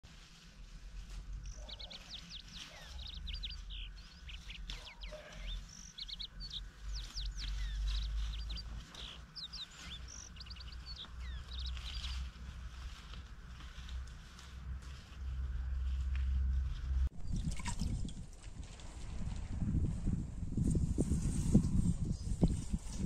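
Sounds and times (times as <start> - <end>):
small birds chirping: 1.0 - 13.6.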